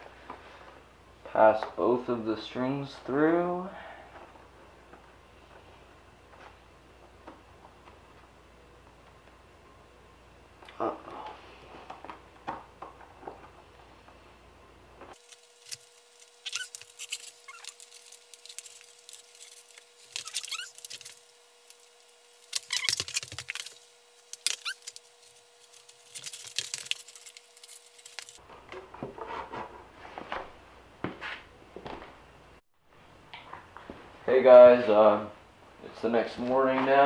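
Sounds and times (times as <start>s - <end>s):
cord scraping and rustling: 15.1s - 28.4s
short rising squeaks: 16.3s - 17.9s, 19.2s - 21.2s, 24.4s - 25.0s.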